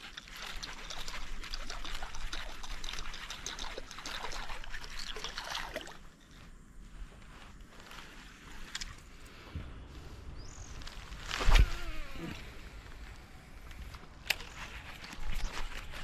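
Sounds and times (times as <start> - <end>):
water splashing and trickling: 0.0 - 6.5.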